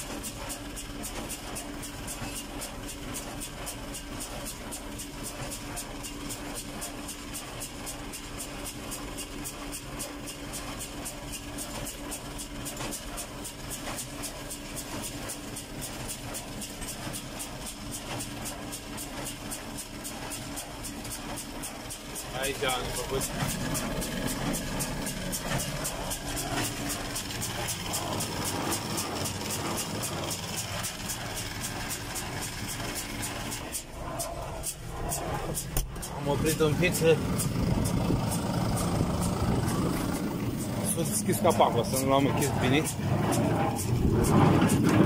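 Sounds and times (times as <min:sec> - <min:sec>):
tractor diesel engine running: 0:00.0 - 0:45.0.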